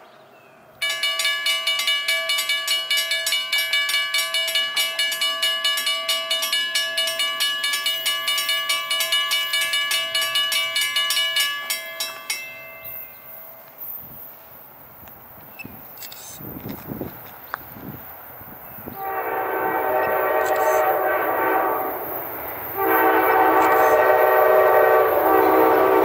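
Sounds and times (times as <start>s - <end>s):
railroad crossing bell ringing: 0.8s - 14.1s, 19.0s - 26.0s.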